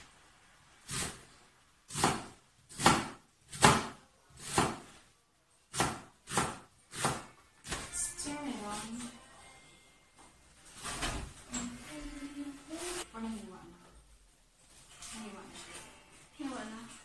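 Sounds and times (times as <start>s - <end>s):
knife chopping on cutting board: 1.9s - 4.9s, 5.7s - 7.8s.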